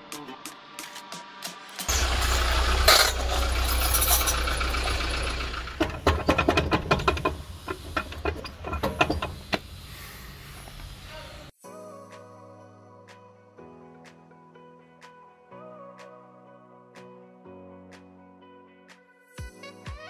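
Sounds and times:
wheel bearing knocks and clicks: 2.9s - 9.8s.

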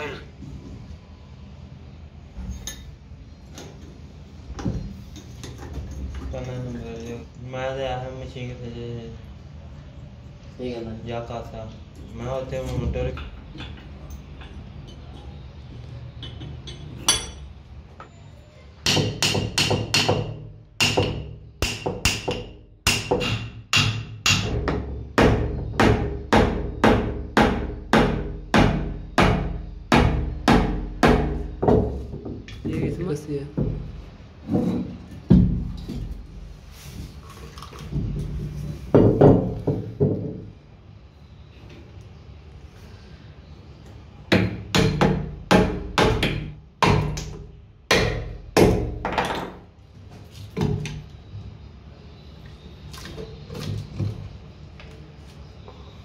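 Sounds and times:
hammer striking steel chisel: 18.8s - 31.4s.

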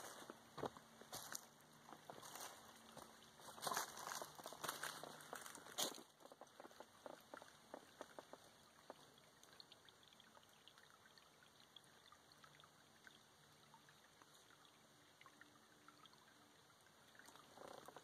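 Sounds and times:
soft crackles: 0.0s - 9.7s
shallow stream over rocks: 0.0s - 18.0s
water plinks: 0.3s - 18.0s.

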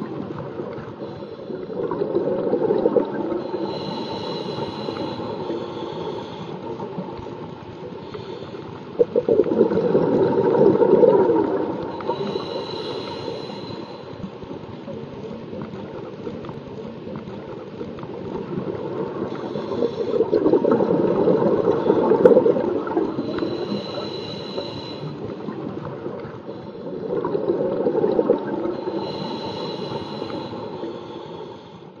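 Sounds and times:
exhaled bubbles underwater: 0.0s - 31.8s
regulator hissing inhalations: 3.4s - 6.8s, 11.9s - 14.3s, 23.1s - 25.3s, 28.7s - 32.0s.

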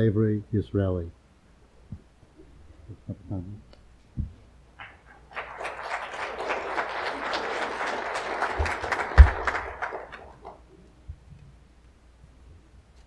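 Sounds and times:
congregation applauding: 4.8s - 10.7s.

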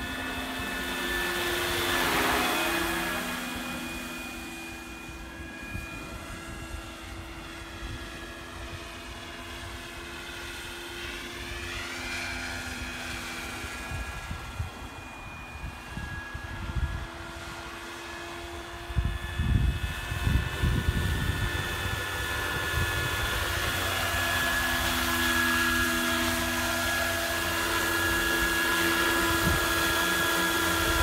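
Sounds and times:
model helicopter rotor whine: 0.0s - 31.0s
wind buffeting microphone: 18.8s - 24.0s, 29.1s - 31.0s.

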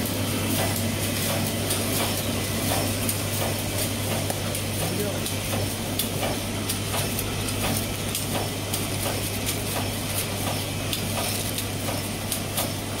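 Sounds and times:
packaging machine humming: 0.0s - 13.0s
sharp machine clicks: 0.5s - 12.8s.

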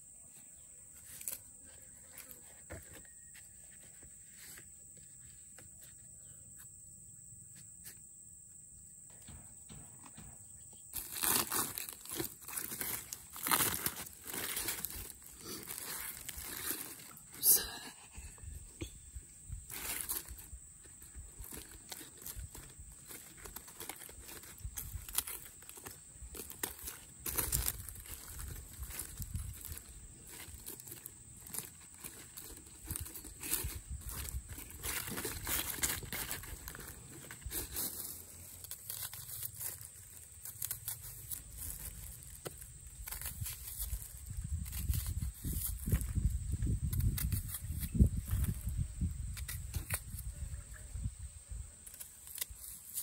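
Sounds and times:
aluminium foil crinkling: 10.9s - 17.5s, 19.6s - 50.3s, 51.8s - 53.0s.

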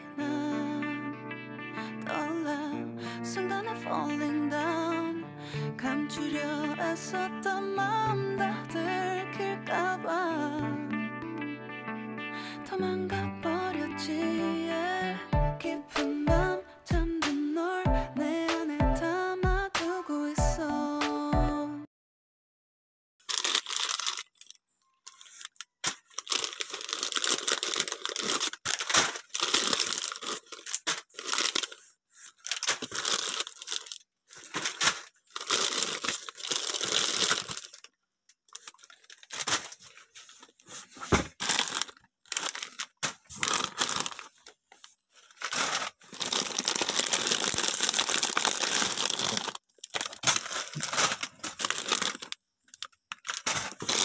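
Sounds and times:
plastic packets crinkling: 23.2s - 54.0s.

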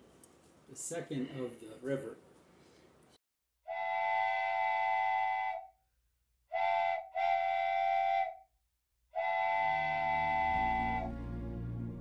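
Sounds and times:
train whistle blasts: 3.7s - 5.8s, 6.5s - 8.4s, 9.1s - 11.2s.

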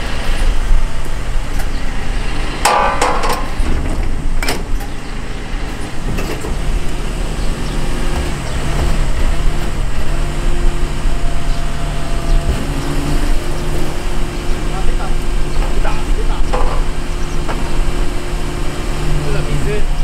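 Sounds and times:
compactor machine hum: 0.0s - 20.0s
garbage truck idling: 0.0s - 20.0s
loud metal clanks: 2.5s - 6.7s, 15.5s - 17.8s.

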